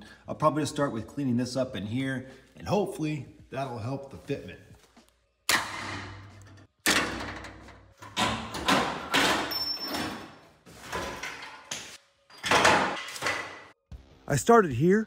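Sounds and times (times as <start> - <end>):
metal panels clanking and scraping: 5.5 - 11.7.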